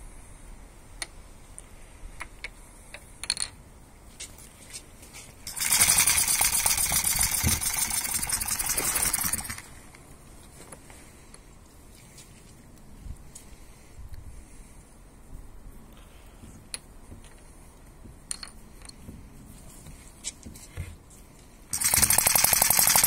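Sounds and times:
small engine clattering: 5.4 - 9.8, 21.7 - 23.0
flywheel clicks: 5.5 - 9.7, 21.7 - 23.0.

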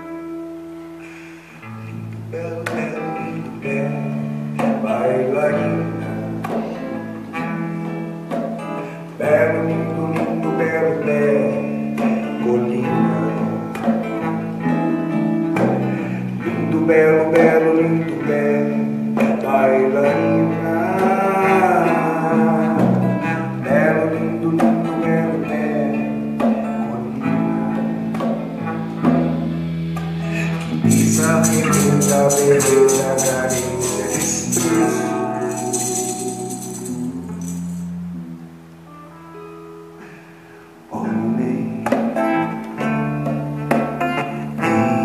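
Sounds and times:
acoustic guitar: 0.0 - 45.0
electric bass: 27.0 - 38.8
hand drums tapping: 30.7 - 37.9.

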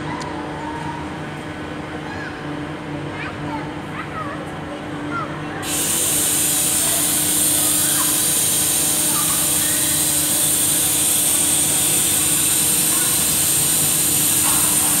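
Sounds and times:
loud steady hiss: 5.6 - 15.0.

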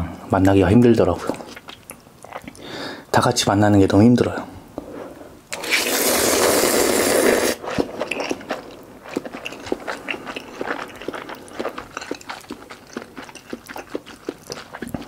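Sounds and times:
chewing with mouth clicks: 1.2 - 2.7, 7.6 - 15.0
person slurping noodles: 5.5 - 12.7.

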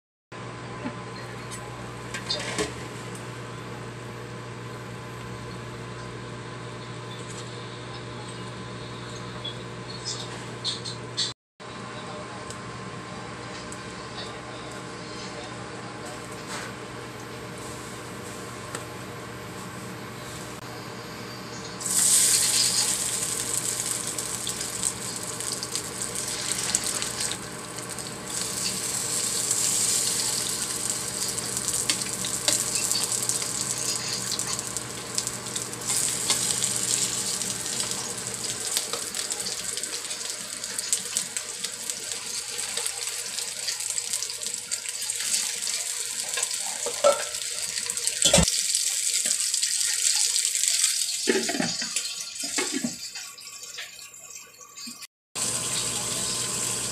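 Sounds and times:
fish frying in hot oil: 21.8 - 56.9.

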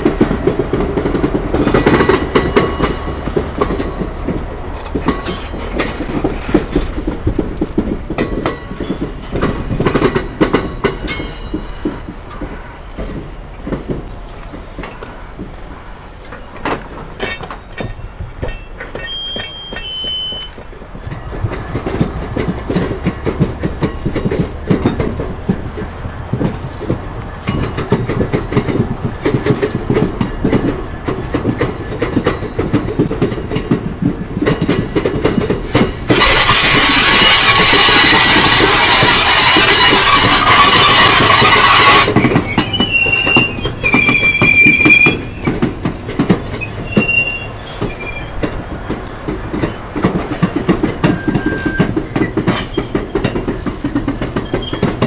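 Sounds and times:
wagons rumbling: 0.0 - 55.0
wheels clicking over rail joints: 0.0 - 55.0
high squeal: 18.0 - 20.5, 36.2 - 45.6, 46.6 - 48.4, 51.0 - 51.9.

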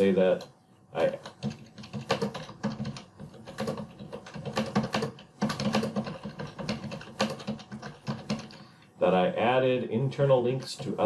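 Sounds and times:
typing on computer keyboard: 1.1 - 8.7.

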